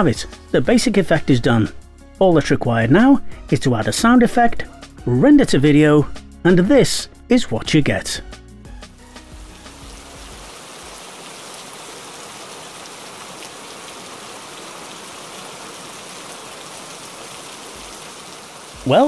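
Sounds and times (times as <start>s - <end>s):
low background music: 0.0s - 10.6s, 18.8s - 19.0s
heavy rain hissing: 9.1s - 19.0s.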